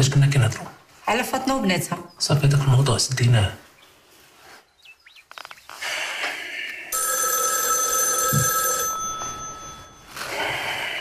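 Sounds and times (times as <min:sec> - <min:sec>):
electronic telephone ring: 0:06.9 - 0:10.5.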